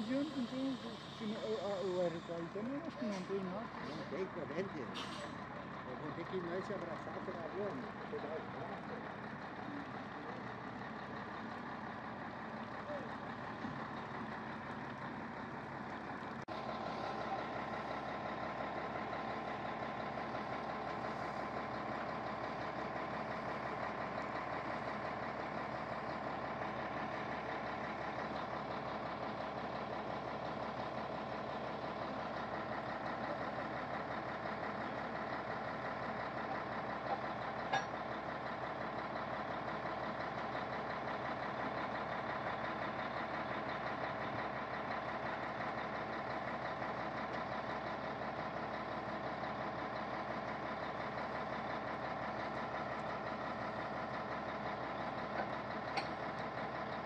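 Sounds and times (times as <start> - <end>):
diesel truck engines idling: 0.0 - 57.0.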